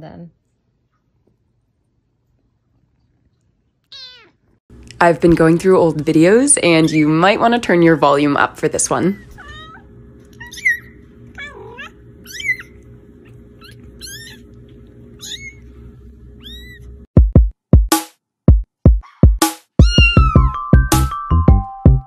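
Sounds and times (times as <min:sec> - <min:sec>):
kitten mewing: 0:03.9 - 0:04.4, 0:09.2 - 0:15.7, 0:16.4 - 0:17.0, 0:19.0 - 0:20.5
low hum: 0:04.7 - 0:17.1.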